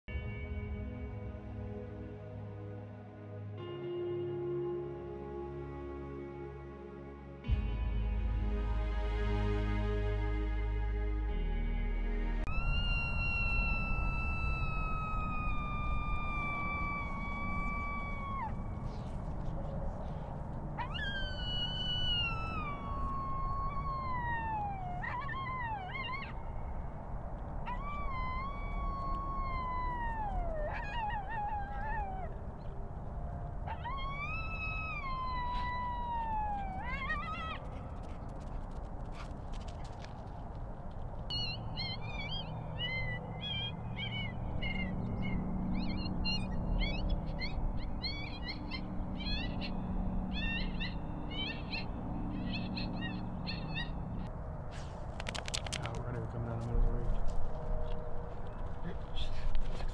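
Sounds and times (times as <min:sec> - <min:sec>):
low wind rumble: 0:00.1 - 0:59.9
coyote howls: 0:12.5 - 0:19.1, 0:20.8 - 0:26.5, 0:27.6 - 0:32.7, 0:33.6 - 0:37.8, 0:41.3 - 0:54.3
coyote yipping: 0:20.8 - 0:26.4, 0:27.7 - 0:32.4, 0:33.7 - 0:38.2, 0:41.3 - 0:56.6.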